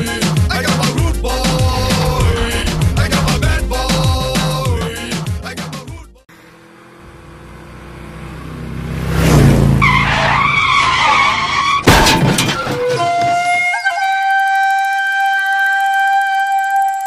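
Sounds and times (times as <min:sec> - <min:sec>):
film music: 0:01.0 - 0:05.4
rumbling rush: 0:01.0 - 0:05.4
wavering high screech: 0:01.3 - 0:04.7
loud hit: 0:01.3 - 0:05.4.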